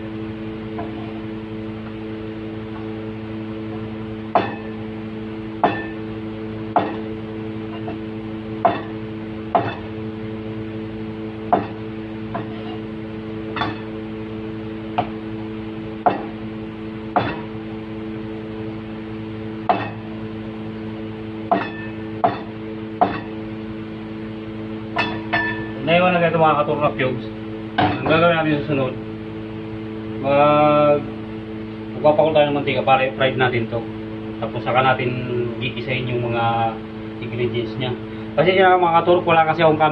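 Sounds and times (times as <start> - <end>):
steady low hum: 0.0 - 39.9
cleaver chopping onto cutting board: 6.8 - 7.0, 9.5 - 9.8, 11.5 - 11.8, 16.0 - 16.3, 17.2 - 17.4, 21.5 - 23.3.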